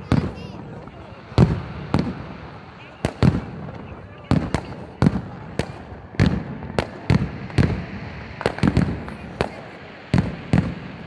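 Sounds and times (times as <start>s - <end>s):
fireworks bangs: 0.0s - 11.0s.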